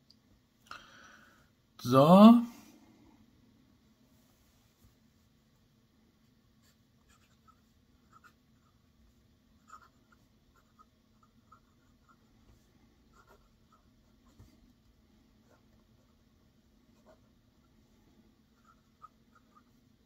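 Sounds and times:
fountain pen scratching on paper: 0:06.6 - 0:08.8, 0:09.6 - 0:14.6, 0:16.9 - 0:17.3.

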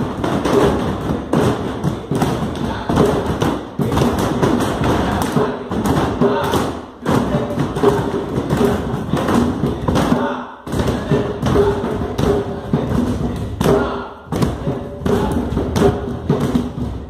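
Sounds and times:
heavy thumps and taps: 0:00.0 - 0:17.0.

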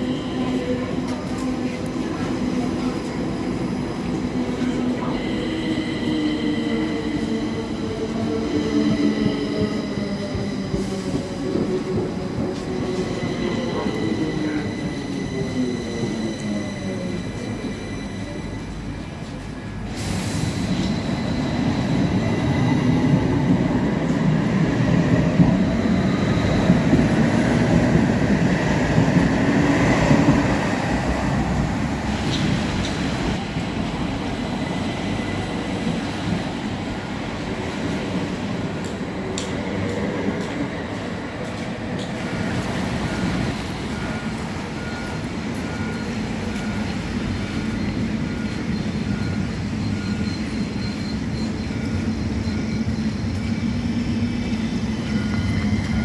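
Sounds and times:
tram wheel rumble on rails: 0:00.0 - 0:56.0
metro train motor whine: 0:41.5 - 0:56.0.

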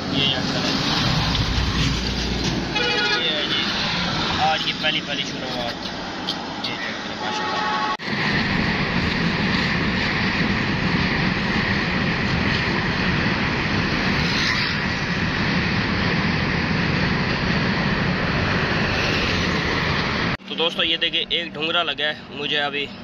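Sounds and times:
road noise: 0:00.0 - 0:23.0
wind noise: 0:08.0 - 0:20.4.

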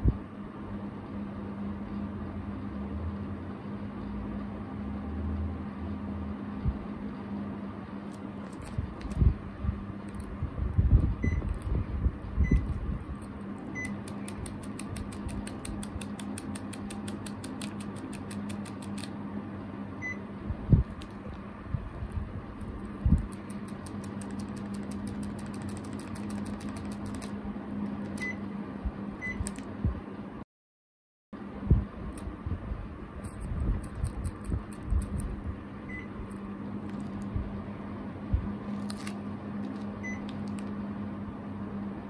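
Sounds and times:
air conditioner fan humming: 0:00.0 - 0:30.4, 0:31.4 - 0:42.0
fast faint clicks: 0:23.1 - 0:27.4.

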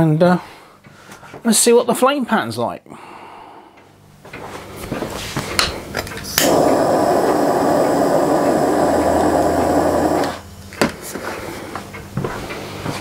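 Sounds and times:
blowtorch igniting with a click: 0:06.2 - 0:10.4
blowtorch flame rushing: 0:06.3 - 0:10.5.

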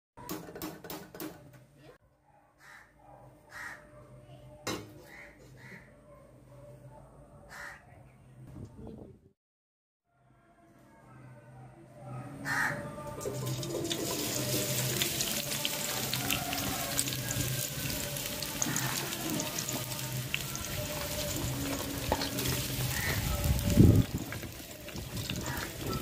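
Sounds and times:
onions sizzling in hot oil: 0:13.2 - 0:26.0.

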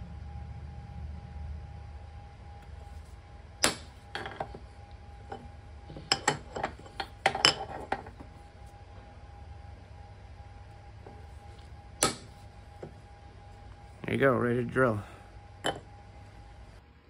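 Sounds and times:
hammer tapping metal punch: 0:06.0 - 0:08.2, 0:15.6 - 0:15.9.

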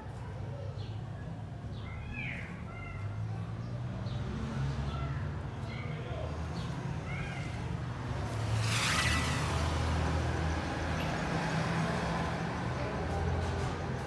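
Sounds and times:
road traffic rumble: 0:00.0 - 0:14.0
vehicle passing close by: 0:03.7 - 0:14.0.

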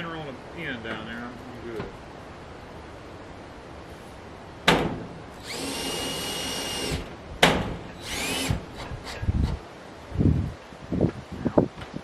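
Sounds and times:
power drill whine: 0:05.4 - 0:07.1, 0:08.0 - 0:08.6.

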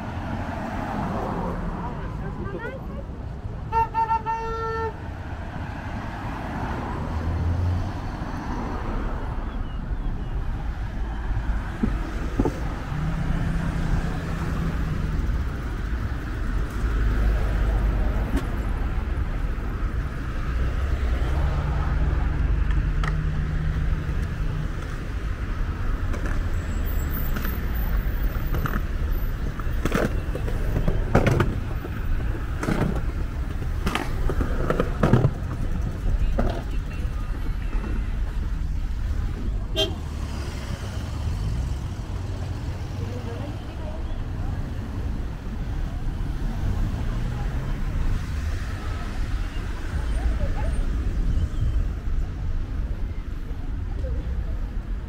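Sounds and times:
cars passing: 0:00.0 - 0:55.0
car horn: 0:03.6 - 0:05.1, 0:36.2 - 0:38.2, 0:39.7 - 0:40.1.

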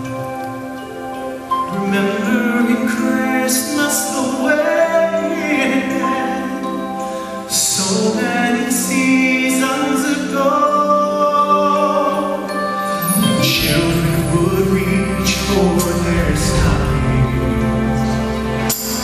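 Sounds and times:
man singing a ballad: 0:01.7 - 0:19.0
band accompaniment: 0:12.4 - 0:19.0.

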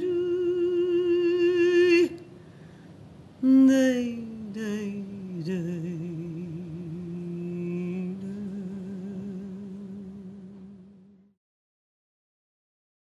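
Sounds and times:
woman singing unaccompanied: 0:00.0 - 0:02.4, 0:03.4 - 0:11.3.

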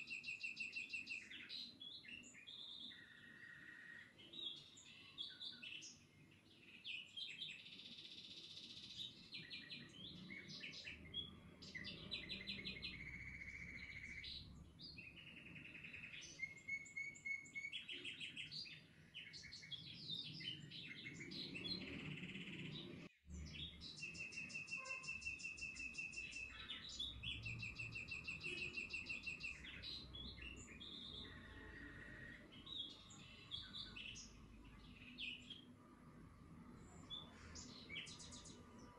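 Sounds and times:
small birds chirping and trilling: 0:00.0 - 0:38.9.

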